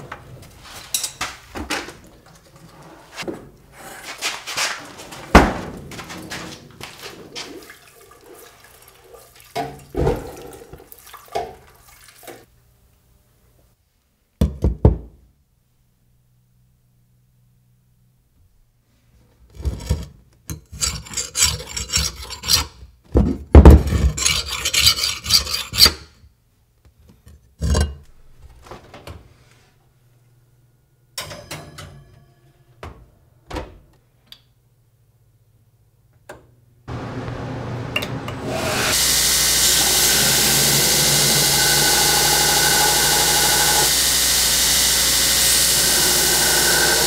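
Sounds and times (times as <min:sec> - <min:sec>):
file scraping steel blade: 0:19.6 - 0:22.8, 0:23.9 - 0:26.1
belt grinder running: 0:38.4 - 0:47.0.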